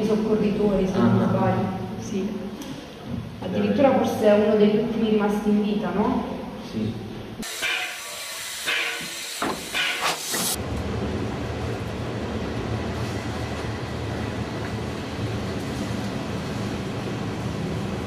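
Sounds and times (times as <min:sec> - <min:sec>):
steam hissing bursts: 0:07.4 - 0:10.6
train running rumble: 0:07.6 - 0:18.0.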